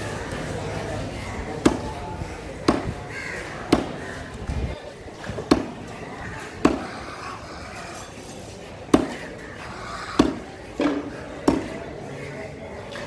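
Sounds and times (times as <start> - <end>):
knife chopping fish on wood: 2.6 - 3.0, 3.7 - 4.0, 6.6 - 6.9, 8.9 - 9.2, 10.2 - 10.4, 11.4 - 11.7.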